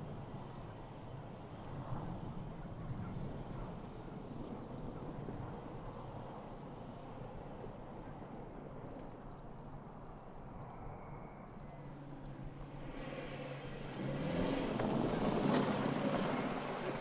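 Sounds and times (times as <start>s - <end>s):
car engine hum: 11.7s - 17.0s
tyres on loose ground: 11.7s - 17.0s.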